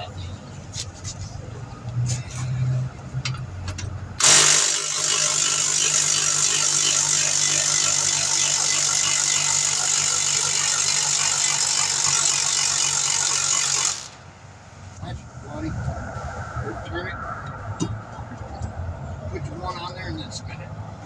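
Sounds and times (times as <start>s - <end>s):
pneumatic impact wrench spinning: 4.2s - 14.2s.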